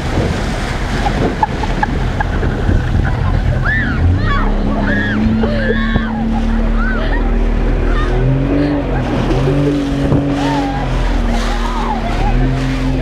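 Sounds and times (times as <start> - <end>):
motorboat engine running: 0.0 - 13.0
water noise: 0.0 - 13.0
wind: 0.0 - 13.0
people calling out: 3.2 - 13.0.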